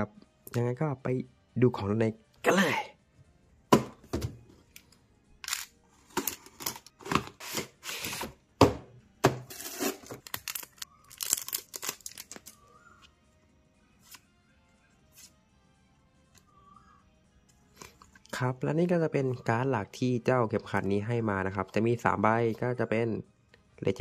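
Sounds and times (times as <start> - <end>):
packaging tearing and crinkling: 9.5 - 12.6.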